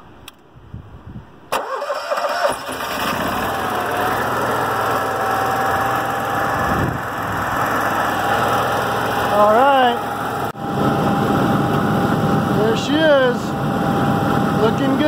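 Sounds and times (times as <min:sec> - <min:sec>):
generator starting and running: 0:01.5 - 0:15.0
thin steady whine: 0:08.1 - 0:15.0.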